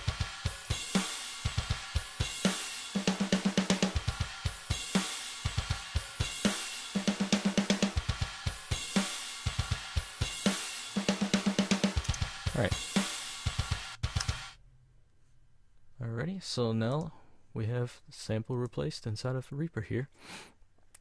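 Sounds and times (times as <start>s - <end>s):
programmed drum loop: 0.0s - 14.6s.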